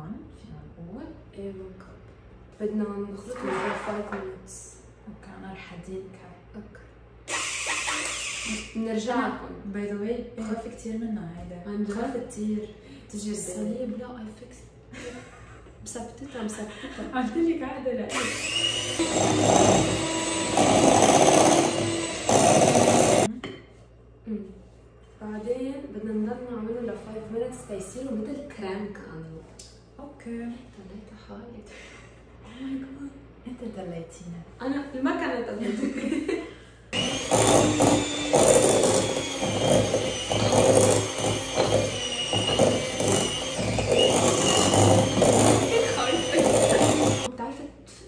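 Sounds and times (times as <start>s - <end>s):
electric hand mixer running: 7.3s - 8.8s, 18.1s - 23.3s, 37.0s - 47.3s.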